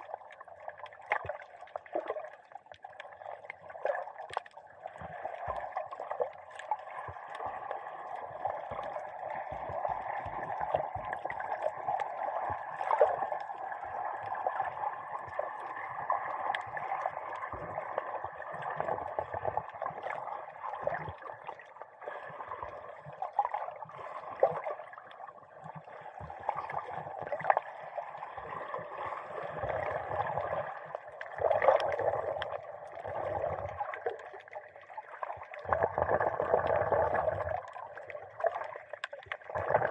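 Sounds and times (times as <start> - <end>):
muffled underwater sloshing: 0.0 - 39.9
small underwater clicks: 0.0 - 39.9.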